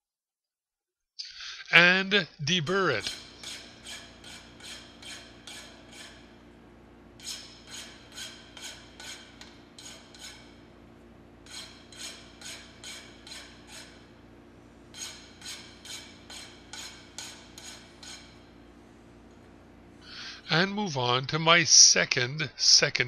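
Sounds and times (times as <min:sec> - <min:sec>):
hand file scraping steel: 0:03.1 - 0:06.4, 0:07.2 - 0:10.6, 0:11.4 - 0:14.2, 0:14.9 - 0:18.6.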